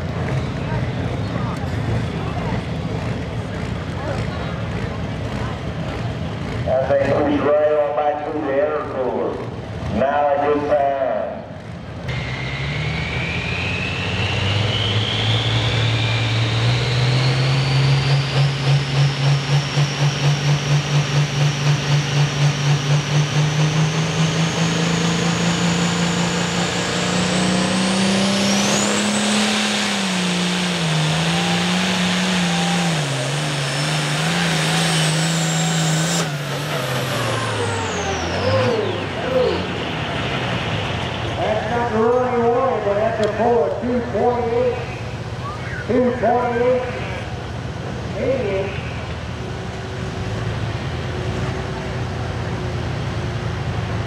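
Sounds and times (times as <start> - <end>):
tractor engine running hard: 0.0 - 54.0
high whine: 12.1 - 47.4.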